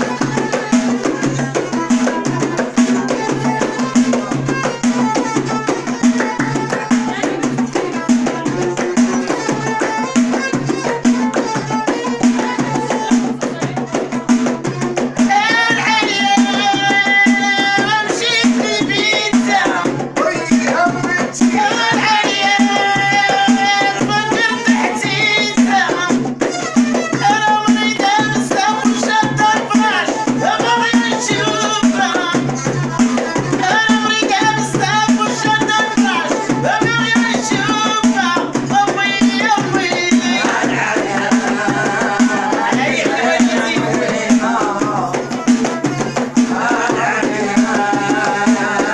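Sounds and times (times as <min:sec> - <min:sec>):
violin: 0:00.0 - 0:15.7
frame drum rhythm: 0:00.0 - 0:48.9
women singing: 0:00.0 - 0:48.9.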